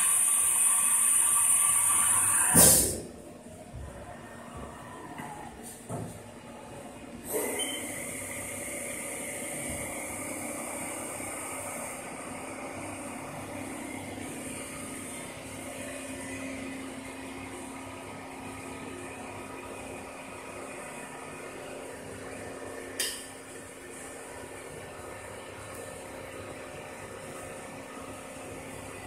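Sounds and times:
coolant spraying hiss: 0.0s - 3.0s.

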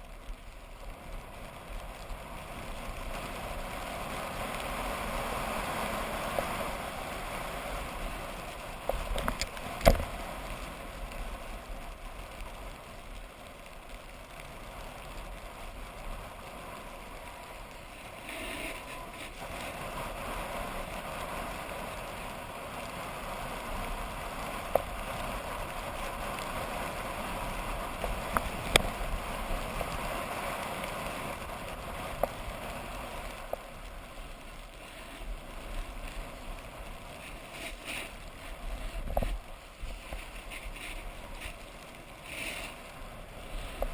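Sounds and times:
skis scraping on snow: 0.0s - 43.9s
wind on microphone: 35.3s - 43.9s.

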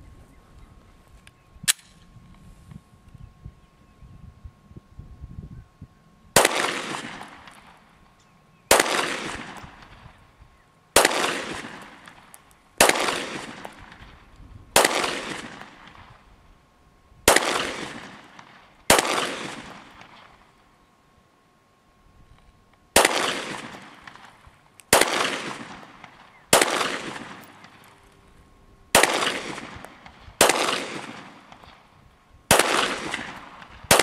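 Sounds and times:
pistol shots echoing: 6.4s - 7.8s, 8.7s - 10.1s, 11.0s - 16.0s, 17.3s - 20.4s, 23.0s - 28.1s, 28.9s - 31.9s, 32.5s - 34.0s.

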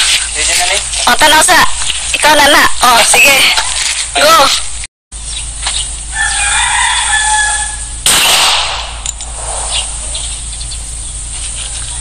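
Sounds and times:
rooster crowing: 6.1s - 8.0s
handgun shot: 8.1s - 9.2s.

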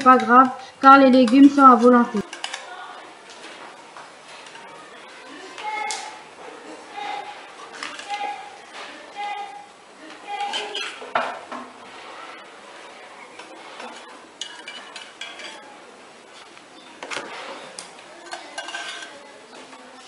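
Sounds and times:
metal cookie cutter clinking: 18.2s - 19.2s.

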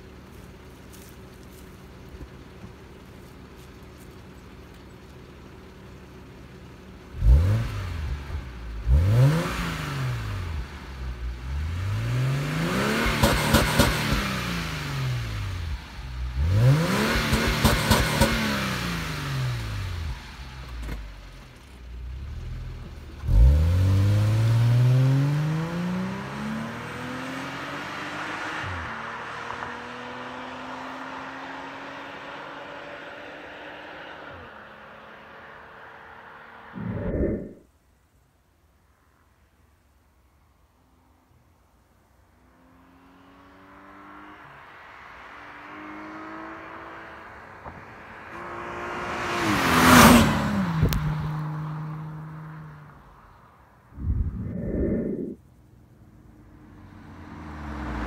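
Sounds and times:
car engine idling and revving: 0.0s - 58.0s
car accelerating away: 7.1s - 21.0s, 22.0s - 37.6s, 42.5s - 55.4s, 56.2s - 58.0s.

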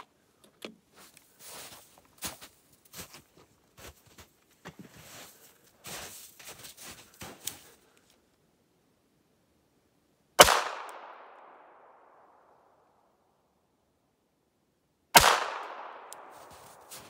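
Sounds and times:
footsteps in snow: 0.9s - 8.2s, 16.2s - 17.0s.

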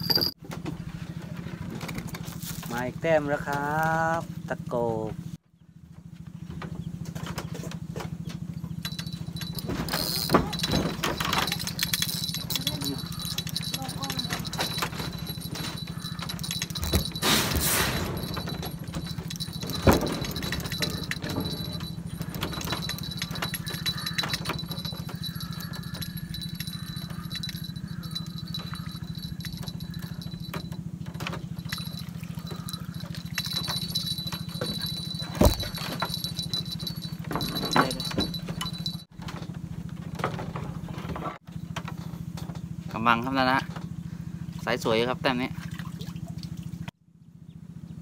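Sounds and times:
steady low hum: 8.0s - 39.1s
fishing reel rattling and ticking: 8.8s - 17.3s, 18.0s - 30.7s, 31.6s - 39.0s.

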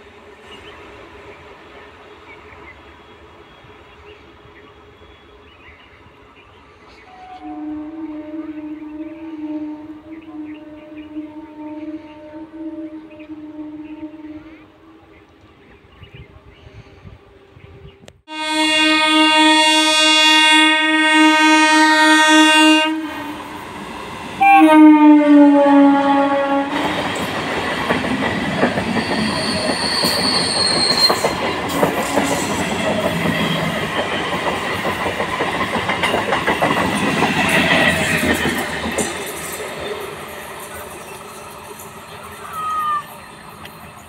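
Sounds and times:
train coaches rumbling past: 0.0s - 44.0s
train horn blasts: 7.0s - 15.2s, 18.2s - 23.7s, 24.4s - 27.1s, 31.7s - 32.8s
wheels clacking over rail joints: 26.8s - 44.0s.

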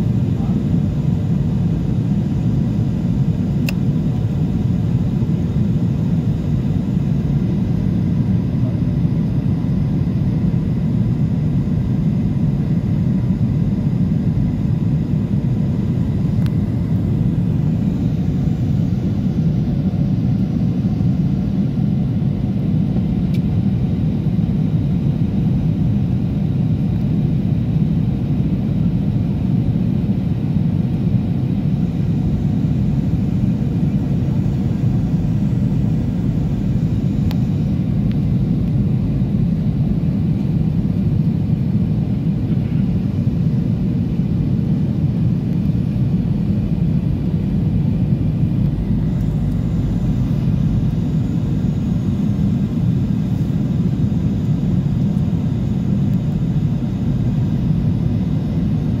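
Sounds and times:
faint high whine: 0.0s - 59.0s
jet engines rumbling: 0.0s - 59.0s
rushing airflow: 46.1s - 59.0s.

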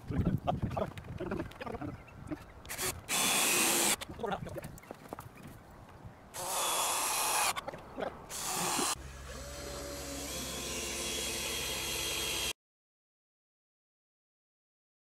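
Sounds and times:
cordless drill whining: 2.7s - 4.0s, 6.4s - 7.6s, 8.3s - 12.6s.

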